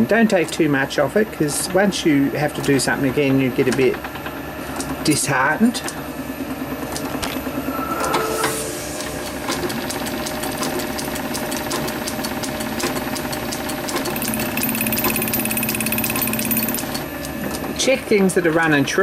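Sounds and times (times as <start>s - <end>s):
fast ticking drive: 9.0s - 17.8s.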